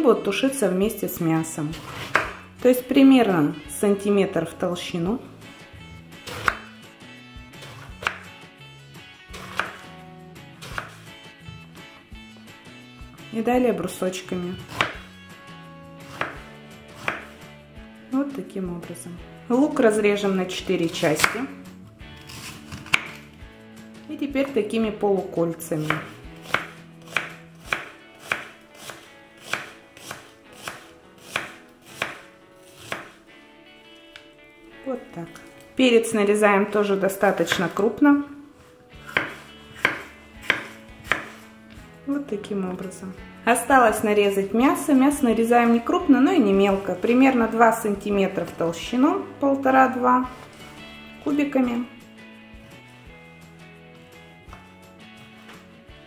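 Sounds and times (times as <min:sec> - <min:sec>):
soft background music: 0:00.0 - 0:56.0
knife chopping on wooden board: 0:01.7 - 0:02.5, 0:06.2 - 0:06.8, 0:07.6 - 0:08.3, 0:09.3 - 0:09.9, 0:10.6 - 0:11.0, 0:14.5 - 0:15.1, 0:16.0 - 0:17.4, 0:21.1 - 0:21.5, 0:22.2 - 0:23.3, 0:25.8 - 0:33.2, 0:39.0 - 0:41.5
knife knocking on wooden board: 0:39.1 - 0:41.4.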